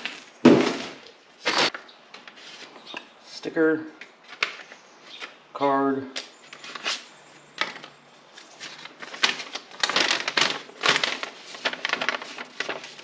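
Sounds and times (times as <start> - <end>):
paper and plastic bag crinkling: 6.5 - 13.0.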